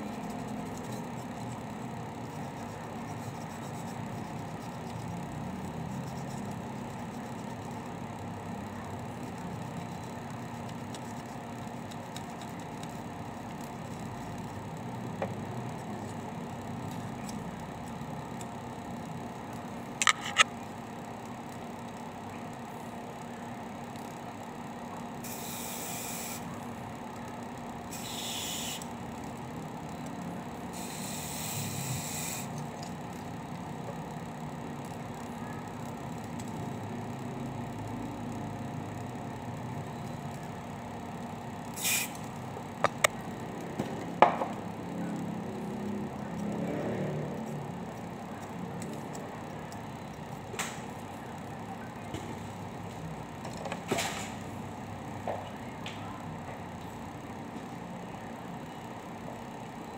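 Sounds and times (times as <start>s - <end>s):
steady low hum: 0.0s - 59.9s
aerosol spray hissing: 41.8s - 42.2s.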